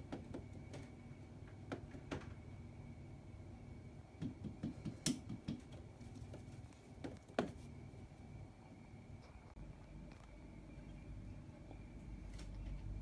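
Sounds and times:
taps on plastic: 4.2s - 5.9s.

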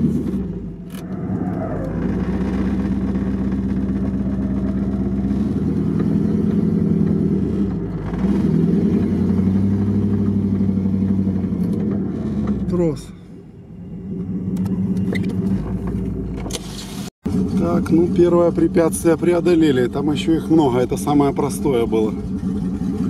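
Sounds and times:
vehicle engine running at low revs: 0.0s - 12.9s.

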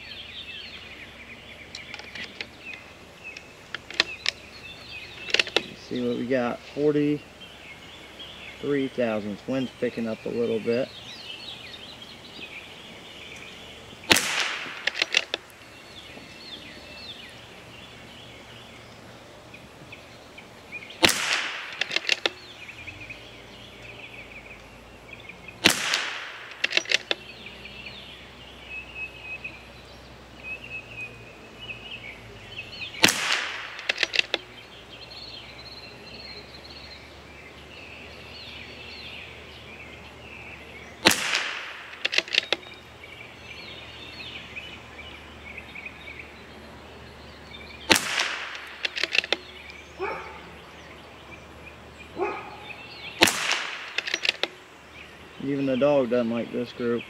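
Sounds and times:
birds chirping: 0.0s - 57.0s
sharp rifle bolt clicks: 3.4s - 4.4s, 5.2s - 5.7s, 14.1s - 15.6s, 21.0s - 22.4s, 25.6s - 27.3s, 33.0s - 34.5s, 41.0s - 42.8s, 47.9s - 49.8s, 53.2s - 54.6s
rifle shots: 14.1s - 15.5s, 21.0s - 22.4s, 25.6s - 27.2s, 33.0s - 34.4s, 41.0s - 42.6s, 47.9s - 49.4s, 53.2s - 54.6s.

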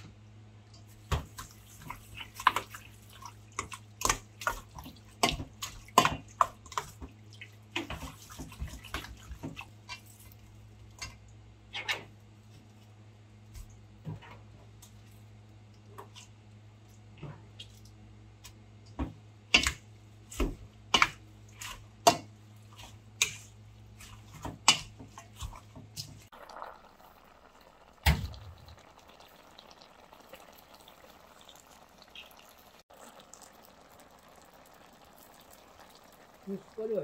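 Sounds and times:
wet squelching of mixing food: 0.7s - 37.0s.

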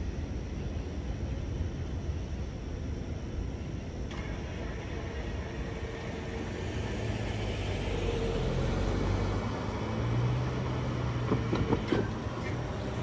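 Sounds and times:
road traffic rumble: 3.6s - 13.0s
car driving past: 4.7s - 13.0s.

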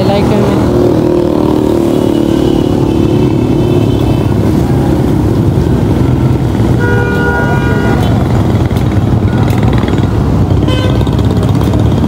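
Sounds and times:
low traffic rumble: 0.0s - 12.0s
motorcycles passing: 0.0s - 12.0s.

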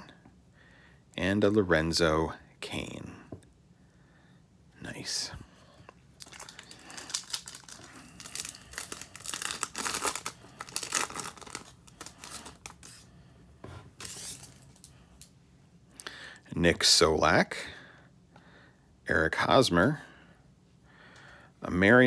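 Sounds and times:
foil wrapper crinkling: 6.2s - 13.1s, 14.0s - 14.9s.

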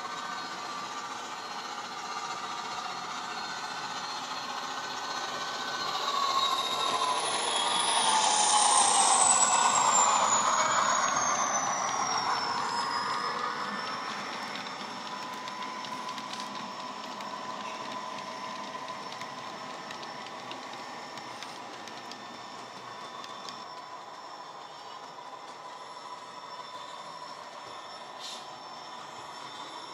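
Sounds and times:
model train diesel engine sound: 0.0s - 29.9s
high whine falling in pitch: 6.0s - 16.4s.

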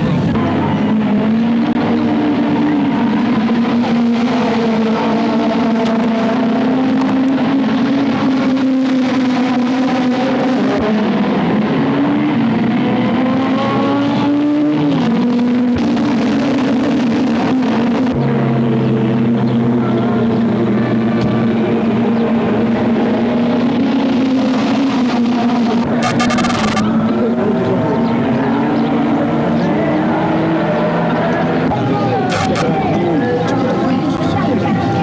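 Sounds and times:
car engine running: 19.1s - 26.8s, 32.3s - 32.6s.

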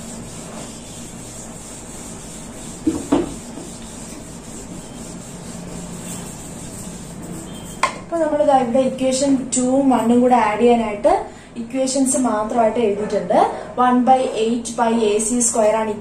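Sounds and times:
eraser rubbing on paper: 0.0s - 7.8s.

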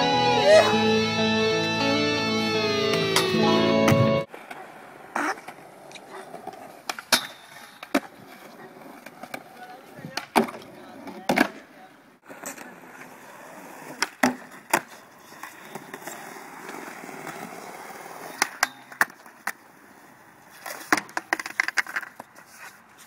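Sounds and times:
skateboard wheels rolling on concrete: 3.4s - 23.0s
skateboard clacking on ground: 4.3s - 11.7s, 12.3s - 23.0s.

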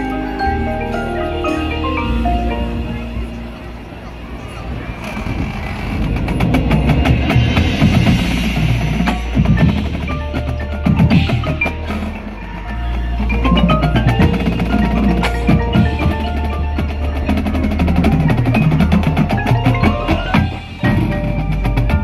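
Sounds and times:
mallet keyboards: 0.0s - 22.0s
drum and cymbal hits: 5.8s - 22.0s
marimba playing quick runs: 6.0s - 22.0s.

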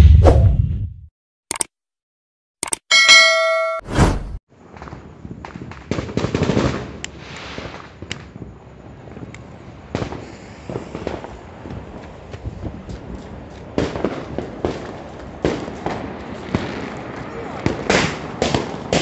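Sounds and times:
firecrackers banging and popping: 4.7s - 19.0s.

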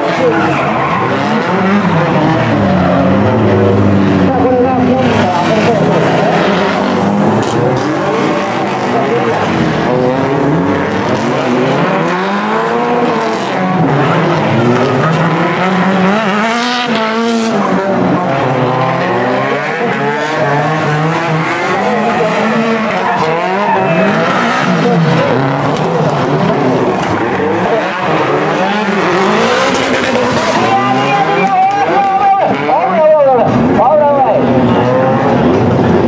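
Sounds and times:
car engines revving: 0.0s - 36.0s
tyres squealing: 21.2s - 32.8s.

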